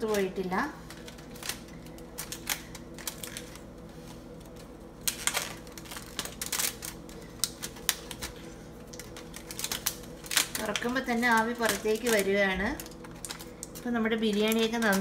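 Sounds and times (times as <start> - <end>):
aluminium foil crinkling: 0.0 - 15.0.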